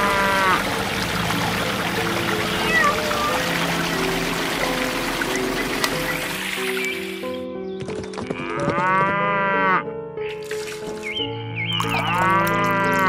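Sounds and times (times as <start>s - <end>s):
cow mooing: 0.0s - 0.6s, 8.3s - 9.9s, 12.1s - 13.0s
background music: 0.0s - 13.0s.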